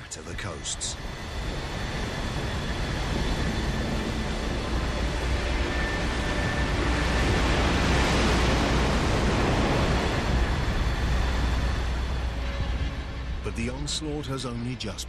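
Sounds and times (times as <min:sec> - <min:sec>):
wave surging with deep rumble: 0:00.4 - 0:15.0.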